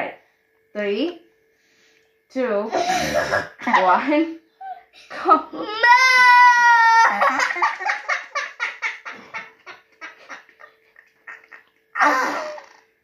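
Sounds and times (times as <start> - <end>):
boy laughing hard: 5.2 - 12.8.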